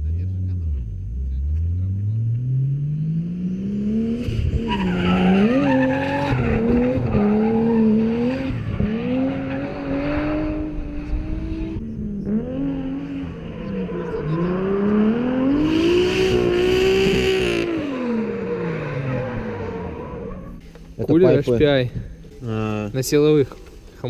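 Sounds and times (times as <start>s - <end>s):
car engine revving hard: 1.9s - 20.6s
tyres screeching: 4.5s - 10.3s.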